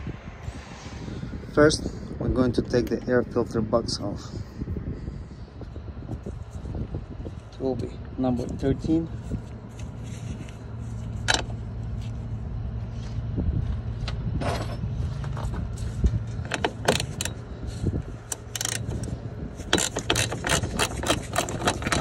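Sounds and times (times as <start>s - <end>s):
steady low hum: 0.0s - 22.0s
tool scraping: 9.1s - 12.3s, 14.4s - 22.0s.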